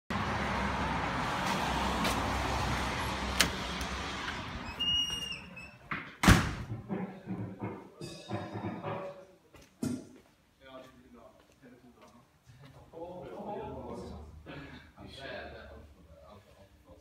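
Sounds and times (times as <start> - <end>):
door latch click: 3.3 - 4.0
door banging shut: 3.3 - 7.0
door squeak: 3.4 - 5.9.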